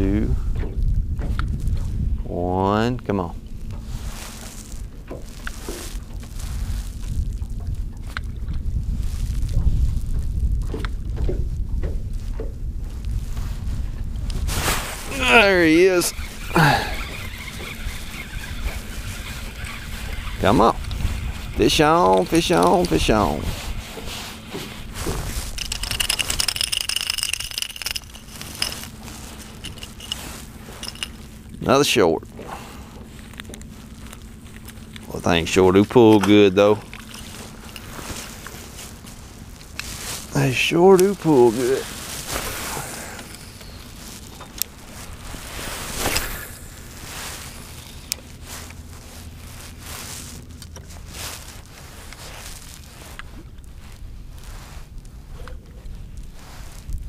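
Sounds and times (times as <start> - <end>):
wind buffeting microphone: 0.0 - 31.6
low steady rumble: 0.0 - 57.0
fishing reel clicking whir: 15.2 - 23.4, 25.5 - 30.2.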